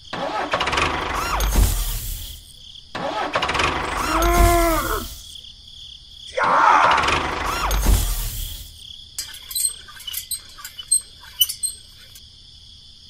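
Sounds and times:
tractor engine revving: 0.0 - 2.4, 3.0 - 5.2, 6.9 - 12.2.

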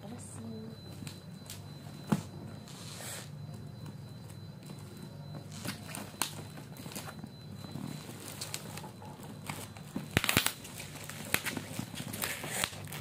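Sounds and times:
plastic rustling: 0.8 - 13.0.

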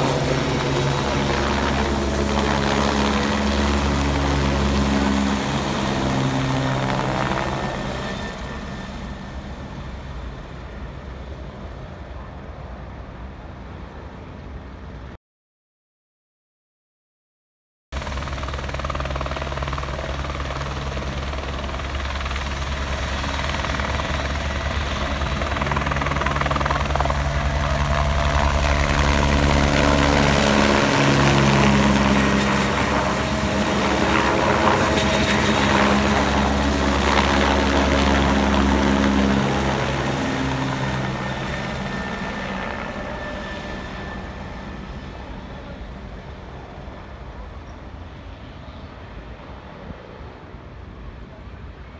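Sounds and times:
helicopter rotor beat: 0.0 - 11.6, 18.0 - 48.0
turbine whine: 22.3 - 49.9.

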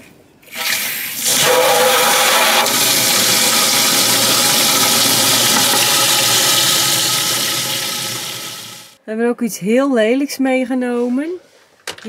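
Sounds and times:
water rushing into plastic tank: 0.5 - 9.0.

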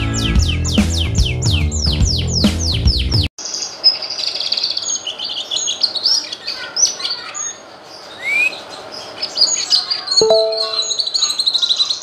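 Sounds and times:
bird chirping and trilling: 3.4 - 12.0.

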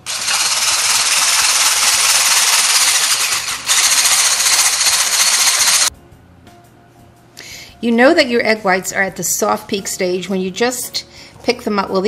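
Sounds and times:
electric blender whisking: 0.0 - 5.9.

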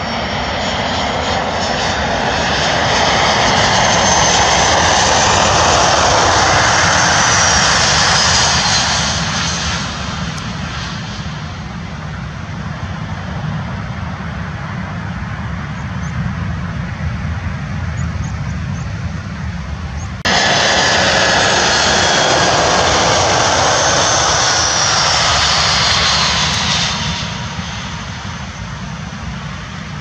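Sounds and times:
jet engine whine passing: 0.0 - 15.7, 18.6 - 30.0
jet engine low rumble: 0.0 - 30.0.

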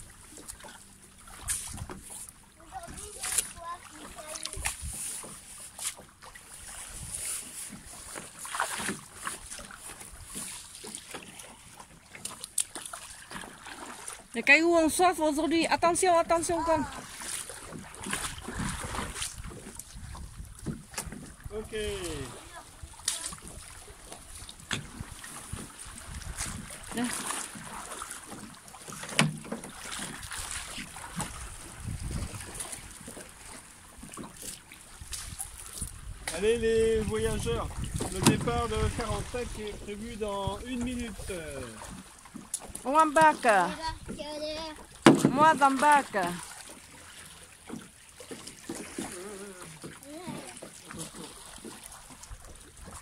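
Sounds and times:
small waves lapping against rocks: 0.0 - 53.0
wind buffeting microphone: 18.2 - 21.6, 24.6 - 26.9, 31.2 - 32.9, 35.0 - 41.4.

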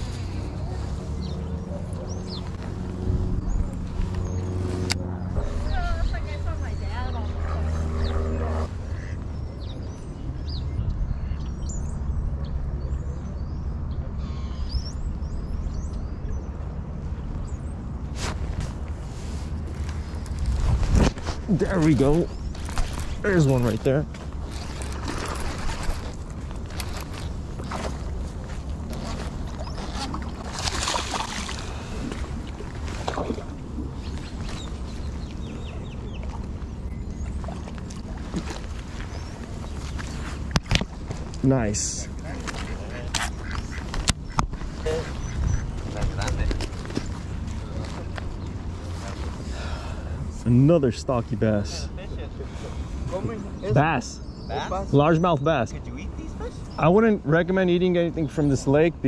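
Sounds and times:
small birds chirping: 0.0 - 18.4, 21.5 - 32.0, 33.8 - 59.0
wind rumble on microphone: 0.0 - 41.4
fish splashing at water surface: 30.0 - 33.6.

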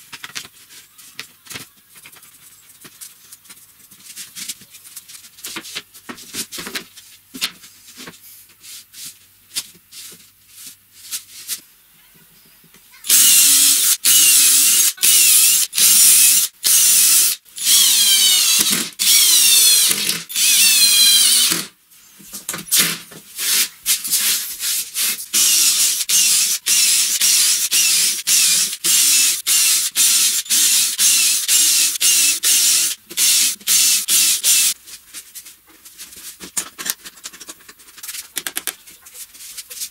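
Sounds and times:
cordless drill driving screws: 13.1 - 21.7, 25.4 - 34.8.

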